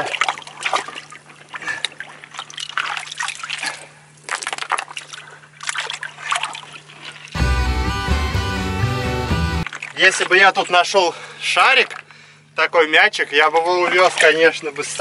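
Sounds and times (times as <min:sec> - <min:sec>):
water dribbling: 0:00.0 - 0:07.4
hands splashing in water: 0:01.8 - 0:07.3.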